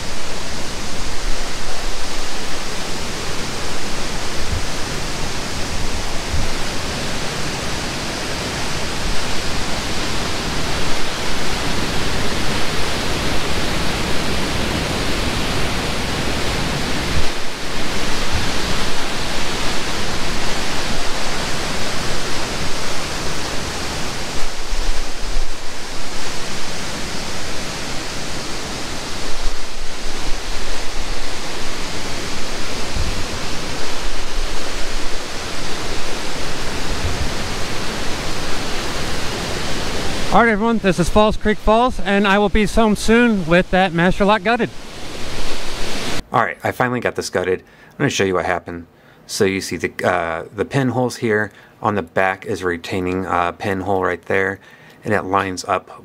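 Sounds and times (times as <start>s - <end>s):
waterfall roaring: 0.0s - 47.0s.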